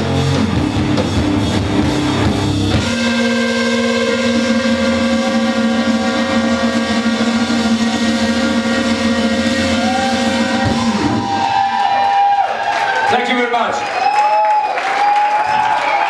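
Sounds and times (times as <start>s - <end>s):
distorted electric guitar chord: 0.0s - 11.8s
droning low note: 0.0s - 12.0s
swooping wavering high tones: 3.7s - 11.7s.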